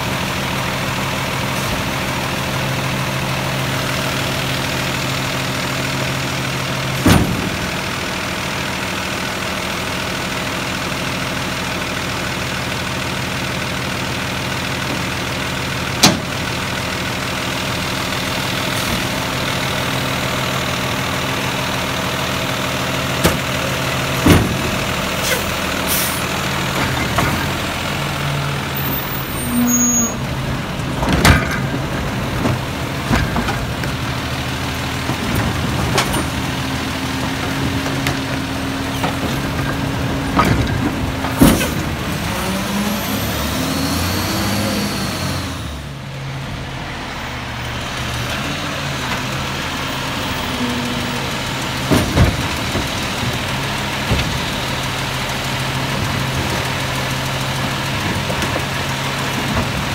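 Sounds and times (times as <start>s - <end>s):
garbage truck engine idling: 0.0s - 43.6s, 45.3s - 59.9s
knocks and bangs from carts: 6.8s - 8.1s, 15.8s - 16.6s, 23.0s - 25.2s, 30.4s - 42.8s, 51.3s - 59.9s.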